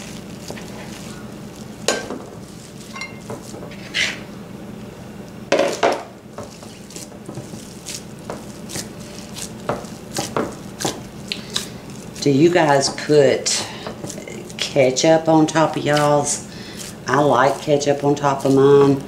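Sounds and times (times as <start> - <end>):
steady low hum: 0.0 - 19.0
hands patting meat: 5.5 - 14.8.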